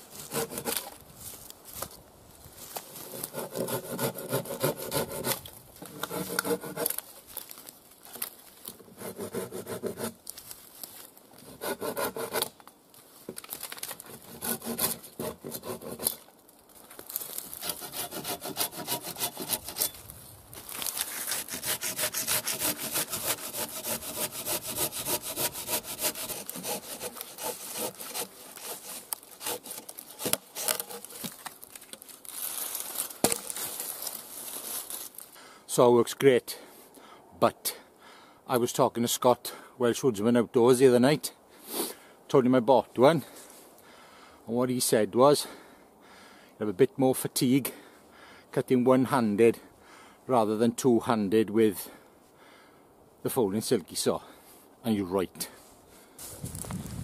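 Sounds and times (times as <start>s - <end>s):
pruning saw cutting through log: 0.1s - 0.9s, 3.0s - 7.0s, 8.9s - 10.2s, 11.4s - 12.5s, 14.0s - 16.2s, 17.5s - 20.0s, 20.9s - 31.3s.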